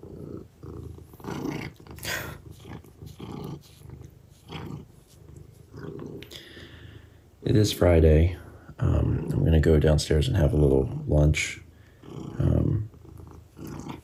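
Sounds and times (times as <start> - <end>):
cat purring: 0.0 - 7.0, 7.6 - 14.0.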